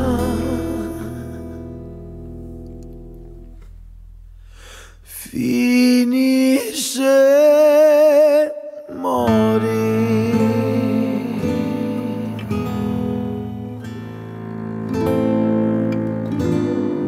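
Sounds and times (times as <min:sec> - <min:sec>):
background music with held notes: 0:12.0 - 0:17.0.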